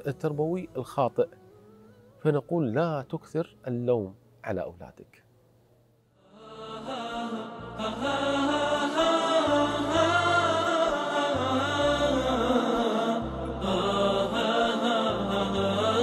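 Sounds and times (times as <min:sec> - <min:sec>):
voices singing devotional song: 0:06.2 - 0:16.0.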